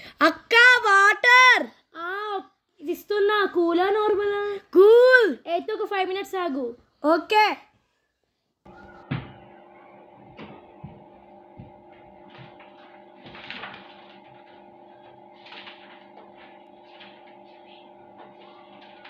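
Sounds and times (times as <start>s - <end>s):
steady hum: 8.7s - 19.0s
notebook pages rustling: 11.4s - 19.0s.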